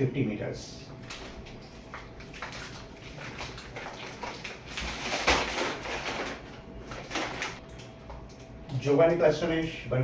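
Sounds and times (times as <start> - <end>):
plastic sack rustling: 2.2 - 7.6.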